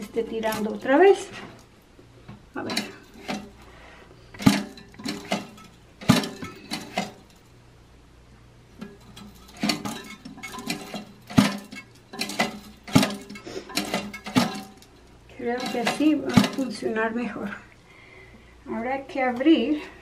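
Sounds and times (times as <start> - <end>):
metal chain clinking on toilet tank: 2.6 - 3.6, 4.4 - 7.5, 8.8 - 16.9.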